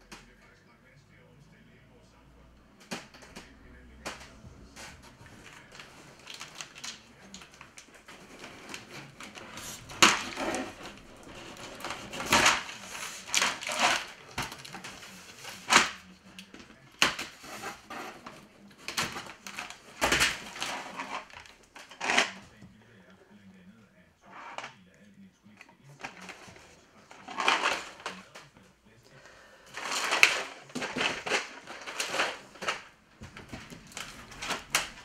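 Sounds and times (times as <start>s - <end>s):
plastic tray knocks and clatters: 2.8s - 22.5s, 29.8s - 35.0s.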